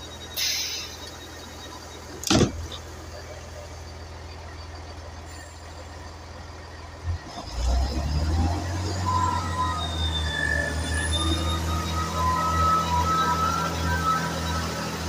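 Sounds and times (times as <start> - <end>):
diesel train engines under power: 0.0 - 15.0
thump: 2.2 - 2.8
high whine rising in pitch: 7.4 - 15.0.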